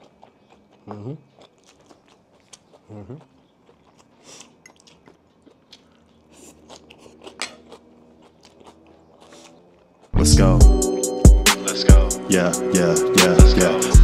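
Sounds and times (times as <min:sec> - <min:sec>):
crunchy chewing: 0:00.0 - 0:10.2
wet mouth sounds: 0:00.0 - 0:10.2.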